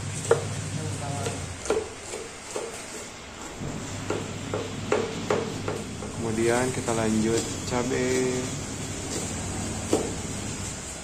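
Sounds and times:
knife chopping on wooden board: 0:00.2 - 0:00.5, 0:01.1 - 0:03.1, 0:04.0 - 0:06.2, 0:09.0 - 0:10.4.

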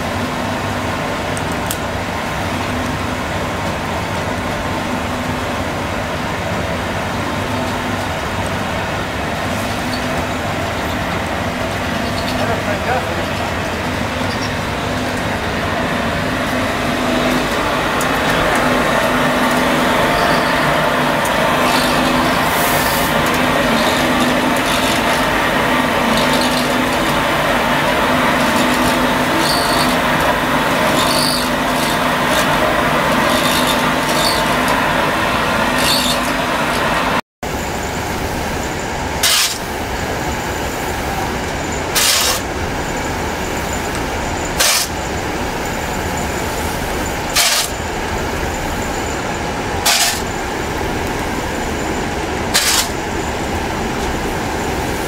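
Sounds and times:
machinery drone: 0:00.0 - 0:55.0
metal scoop scraping charcoal: 0:16.4 - 0:36.8, 0:39.2 - 0:39.7, 0:41.9 - 0:42.5, 0:44.6 - 0:45.0, 0:47.3 - 0:47.8, 0:49.8 - 0:50.4, 0:52.5 - 0:53.1.

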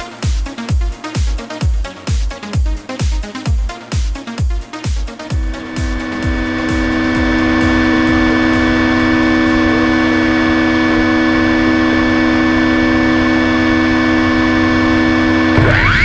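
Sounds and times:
electric motor whine and hum: 0:05.3 - 0:16.0.

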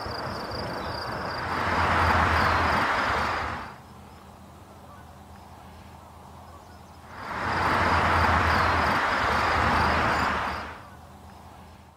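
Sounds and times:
outdoor rushing noise: 0:00.0 - 0:03.8, 0:07.0 - 0:10.9.

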